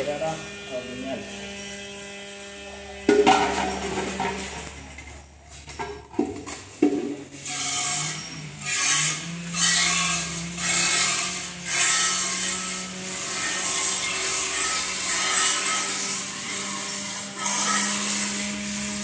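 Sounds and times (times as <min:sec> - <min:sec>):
metal pail knocks: 0:03.1 - 0:04.4, 0:05.8 - 0:07.2.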